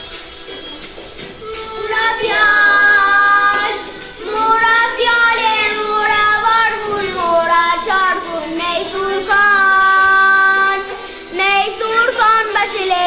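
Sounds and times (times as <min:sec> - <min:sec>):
girl singing: 0:01.4 - 0:13.0.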